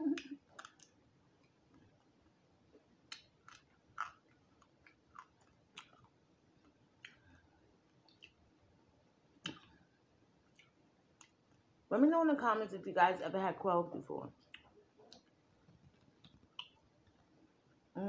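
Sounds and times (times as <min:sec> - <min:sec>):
crunchy chewing: 0:03.1 - 0:07.4.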